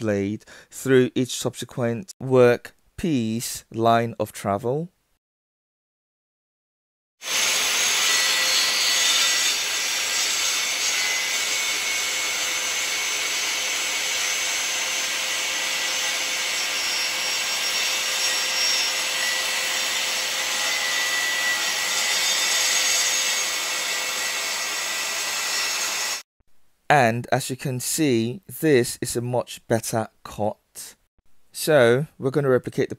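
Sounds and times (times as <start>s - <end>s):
circular saw cutting wood: 7.2s - 26.3s.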